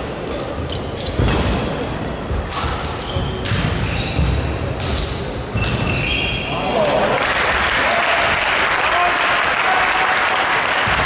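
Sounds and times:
shoes squeaking: 0:00.3 - 0:06.6
rackets hitting shuttlecock: 0:02.4 - 0:06.1.

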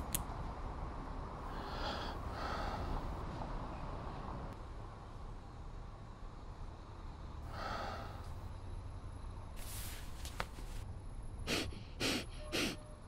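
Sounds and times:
men breathing hard and sighing: 0:01.4 - 0:03.2.

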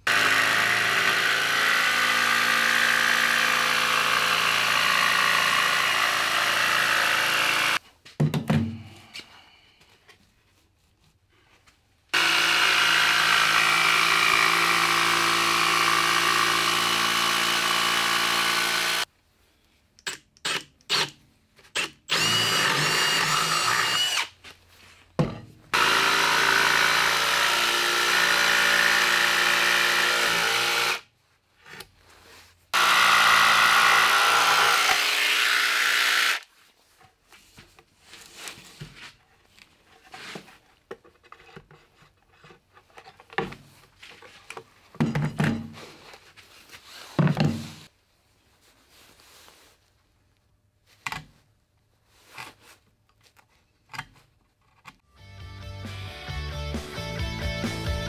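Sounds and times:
jigsaw cutting plywood: 0:00.0 - 0:07.8, 0:12.2 - 0:19.1, 0:21.8 - 0:24.3, 0:25.7 - 0:31.0, 0:32.8 - 0:36.5.

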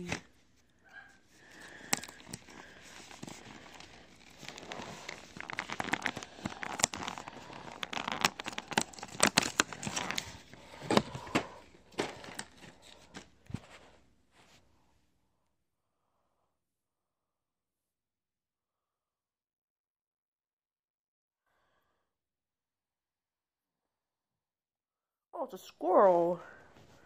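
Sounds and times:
packaging crinkling: 0:01.1 - 0:13.9
cardboard tearing: 0:01.4 - 0:13.6.

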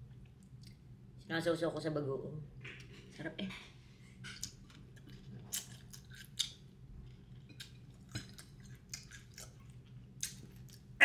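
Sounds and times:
person chewing food: 0:04.2 - 0:11.0.

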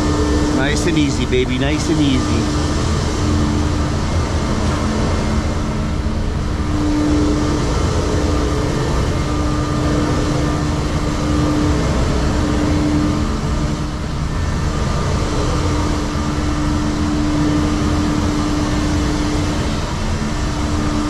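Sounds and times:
truck diesel engine rumble: 0:00.0 - 0:02.7
faint hum: 0:00.0 - 0:21.0.

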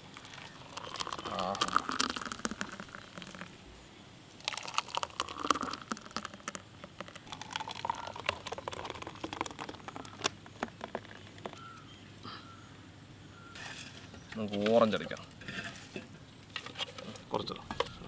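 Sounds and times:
thick pulp pouring: 0:00.0 - 0:03.5, 0:04.4 - 0:11.6
plastic cups crinkling: 0:00.0 - 0:03.6, 0:04.4 - 0:11.8.

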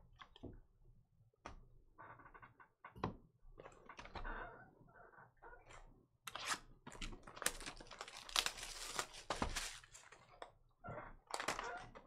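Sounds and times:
plastic wrap tearing and crinkling: 0:07.2 - 0:10.2.

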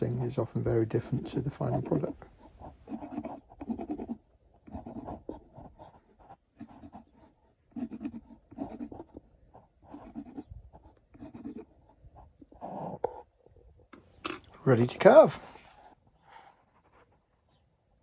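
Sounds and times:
pencil scratching on wood: 0:00.0 - 0:12.6.

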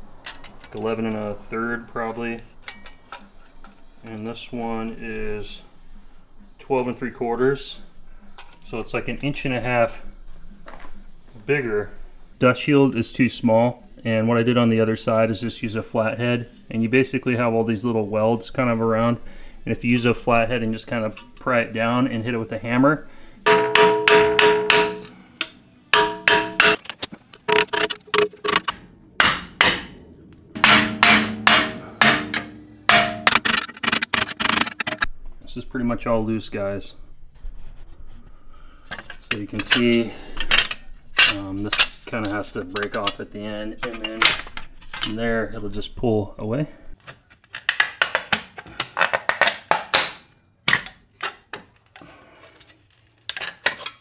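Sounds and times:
hammer striking screwdriver on metal: 0:23.5 - 0:25.1, 0:26.0 - 0:26.8, 0:30.6 - 0:33.6.

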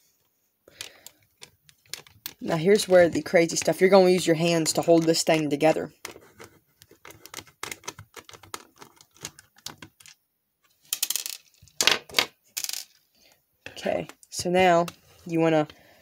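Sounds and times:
small clicks and taps on plastic: 0:06.8 - 0:10.1.

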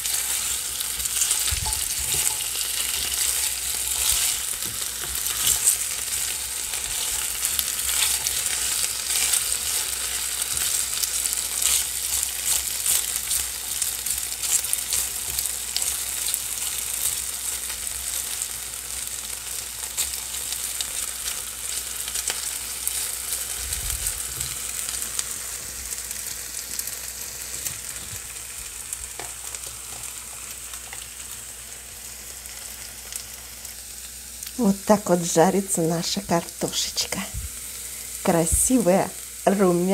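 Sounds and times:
potatoes sizzling in oil: 0:00.0 - 0:39.9
spatula scraping and tapping: 0:00.1 - 0:16.0.

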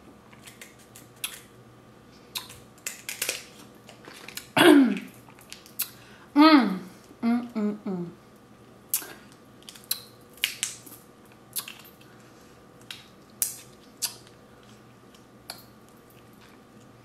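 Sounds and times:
seafood shells cracking: 0:02.4 - 0:04.5, 0:09.6 - 0:11.0.

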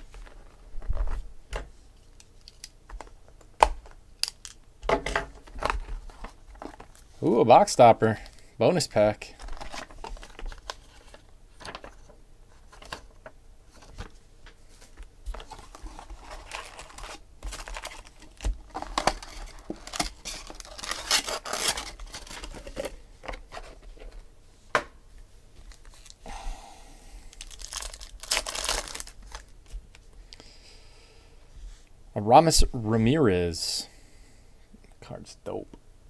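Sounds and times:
foil wrappers tearing and crinkling: 0:09.3 - 0:11.9, 0:15.3 - 0:23.0, 0:27.3 - 0:29.5
paper and cardboard rustling: 0:09.3 - 0:24.2.

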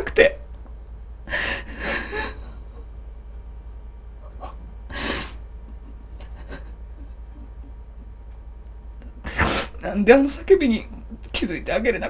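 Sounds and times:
man crying: 0:01.3 - 0:02.8, 0:04.3 - 0:07.8.

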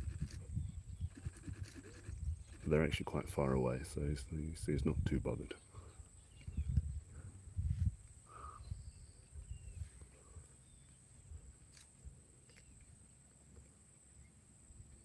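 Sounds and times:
high insect drone: 0:00.0 - 0:03.0
faint bird chirps: 0:05.5 - 0:07.3, 0:08.2 - 0:11.8, 0:12.4 - 0:13.0.

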